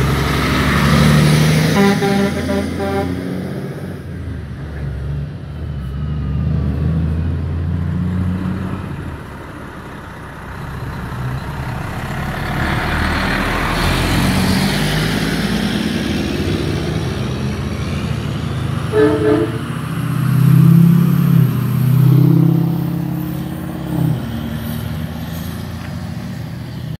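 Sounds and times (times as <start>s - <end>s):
diesel truck engines rumbling past: 0.0s - 27.0s
truck horn blasts: 1.7s - 3.2s, 18.9s - 19.9s.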